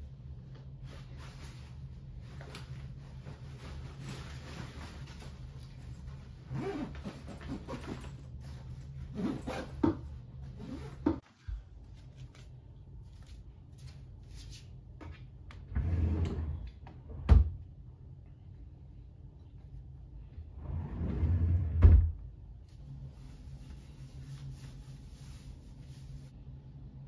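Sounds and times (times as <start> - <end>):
bag rustling: 1.0 - 9.8
drawer sliding open: 15.7 - 16.6, 20.6 - 22.0.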